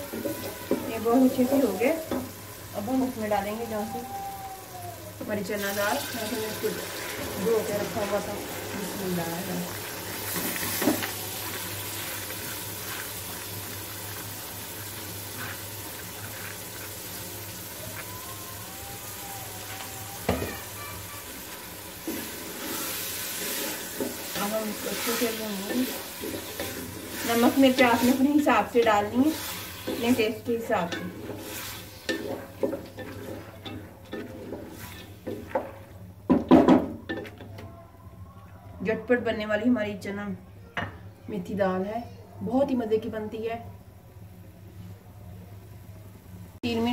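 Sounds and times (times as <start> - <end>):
lentils sizzling in hot oil: 0.0 - 4.6, 5.2 - 37.3
wooden spoon scraping a pot: 9.7 - 17.2, 22.0 - 36.0.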